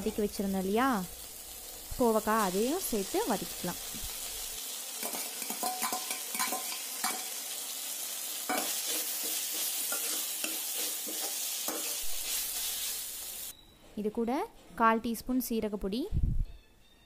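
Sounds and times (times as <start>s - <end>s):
vegetables sizzling in hot oil: 0.0s - 13.5s
spoon scraping metal pan: 8.5s - 12.8s.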